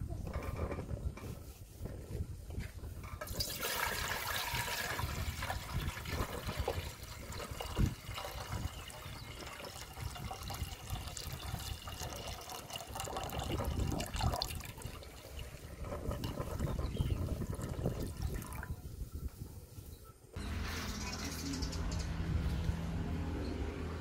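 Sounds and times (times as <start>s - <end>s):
water splashing into a pot: 3.2s - 18.7s.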